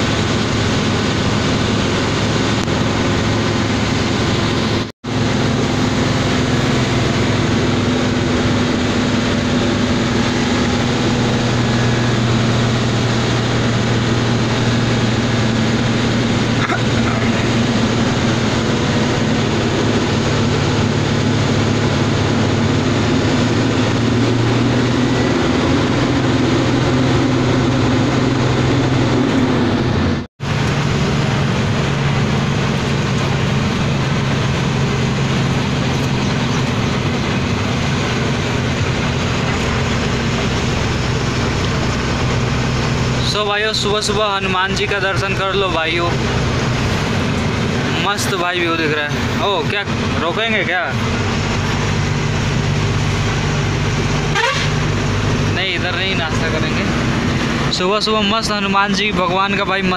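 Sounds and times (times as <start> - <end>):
truck diesel engine running: 0.0 - 59.9
tyre and road noise: 0.0 - 59.9.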